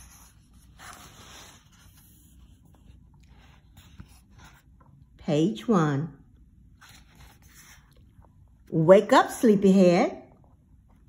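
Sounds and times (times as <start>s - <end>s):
paper page turning: 6.8s - 8.1s.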